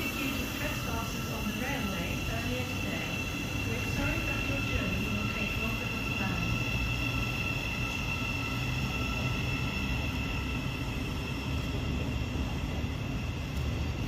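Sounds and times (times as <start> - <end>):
electric train whine: 0.0 - 14.0
train rumble: 0.0 - 14.0.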